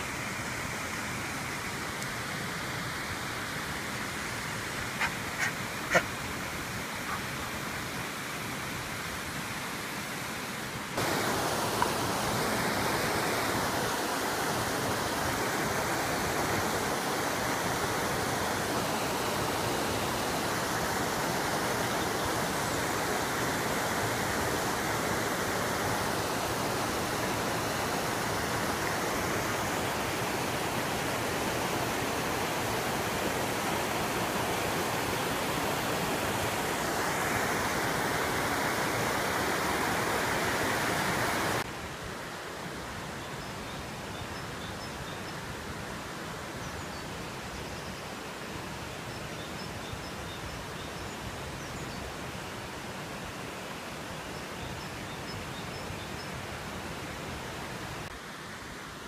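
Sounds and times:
stream rushing over stones: 0.0 - 59.0.

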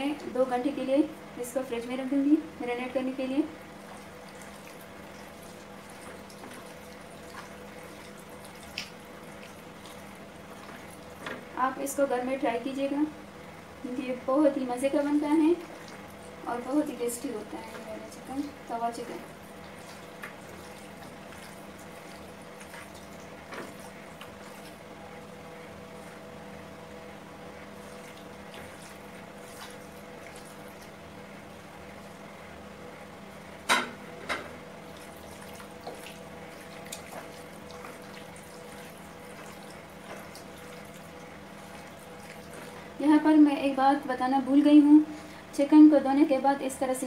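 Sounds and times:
electrical hum: 0.0 - 47.0
hand kneading wet chicken: 3.6 - 11.6, 15.0 - 26.7, 27.4 - 32.3, 34.7 - 43.6.

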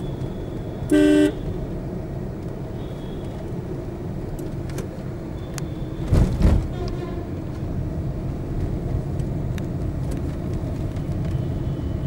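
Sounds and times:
vehicle horn beep: 0.0 - 1.6, 2.8 - 3.4, 5.4 - 6.1, 6.7 - 7.4
traffic and road noise: 0.0 - 12.0.

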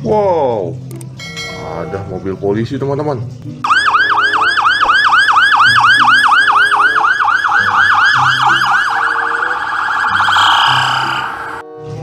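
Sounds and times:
electronic police siren yelping: 3.6 - 11.6.

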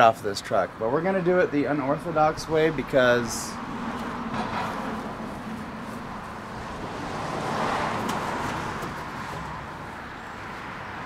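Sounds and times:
vehicle passing by: 2.6 - 11.0.

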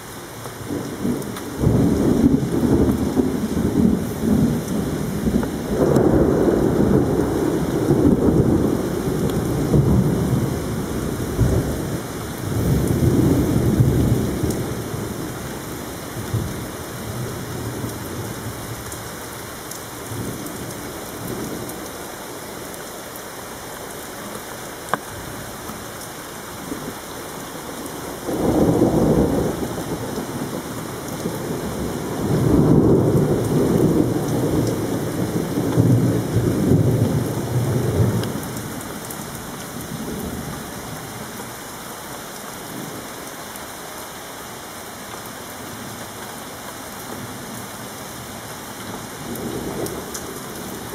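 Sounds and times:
rain falling: 0.0 - 50.9
thunder rumbling: 0.7 - 18.8, 27.8 - 41.1.

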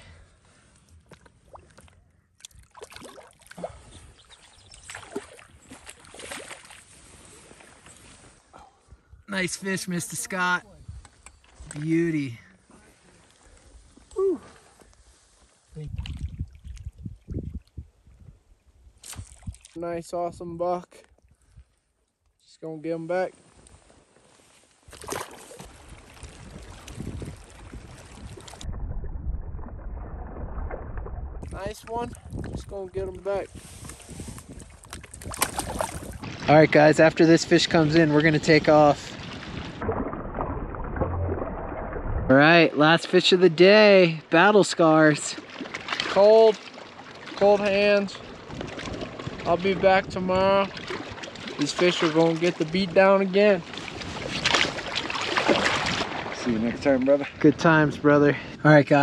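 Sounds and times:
water splashing and sloshing: 0.4 - 9.0, 9.7 - 19.8, 23.2 - 57.8
wind rumble on microphone: 10.6 - 11.3, 15.7 - 19.6, 25.8 - 42.4, 48.4 - 51.1
fish splashing in water: 24.9 - 28.7, 34.6 - 36.5, 39.2 - 42.3, 45.4 - 47.4, 50.7 - 52.6, 53.7 - 56.4.

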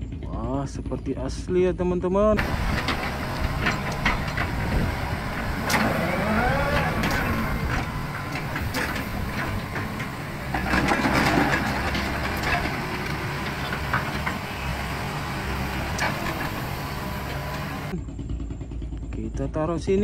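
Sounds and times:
diesel engine running: 0.0 - 20.0
bucket scraping gravel: 5.6 - 16.8.

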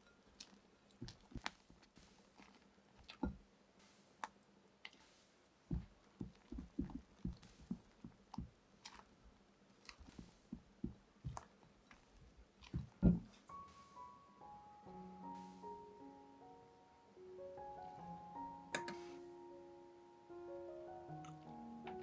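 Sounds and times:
spatula folding thick cream: 0.0 - 9.2, 9.8 - 14.1.

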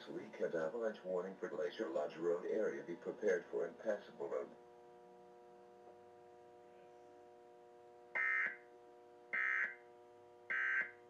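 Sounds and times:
faint steady hum: 0.0 - 11.0
buzzy digital data tones: 10.5 - 10.9.

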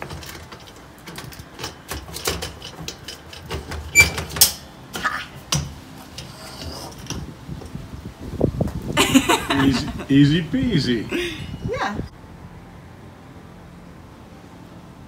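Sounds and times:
metal parts clattering and knocking: 0.0 - 4.7.

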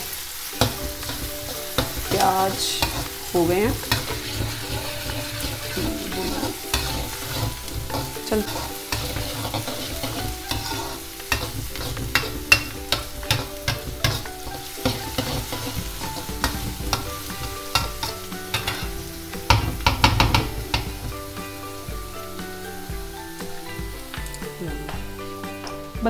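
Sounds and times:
onions sizzling in oil: 0.0 - 26.0
spatula scraping a metal pan: 0.6 - 21.2.

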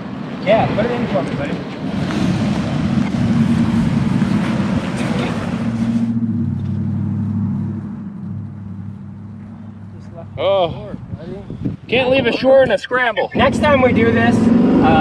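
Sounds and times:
vehicle engine running: 1.4 - 11.2.

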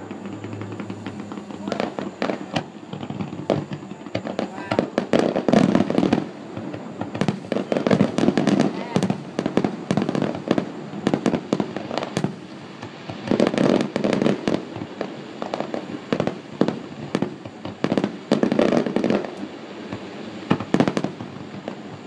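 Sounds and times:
fireworks bangs: 0.0 - 22.0.

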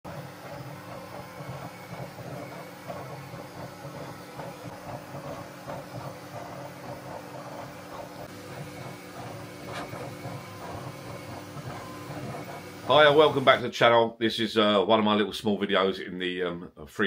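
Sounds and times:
fan hum: 0.0 - 13.7
stepper motors whining: 0.1 - 13.6.

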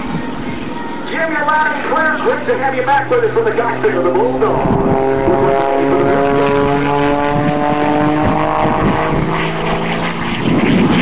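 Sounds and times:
propeller plane engine: 0.0 - 11.0.

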